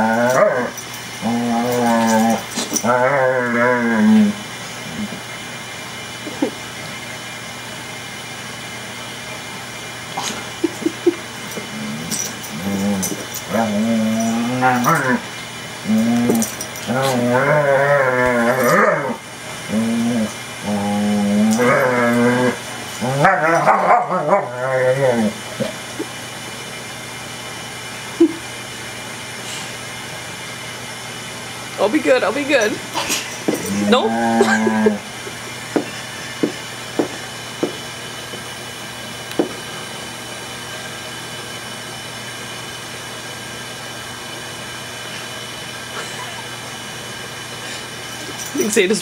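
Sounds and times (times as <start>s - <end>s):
dogs growling: 0.0s - 5.3s, 10.1s - 26.2s, 32.6s - 38.5s
steady hiss and hum: 0.0s - 49.0s.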